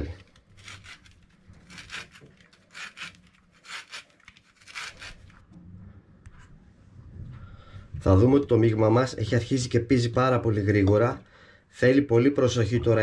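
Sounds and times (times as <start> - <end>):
orange grated on metal grater: 0.0 - 5.4.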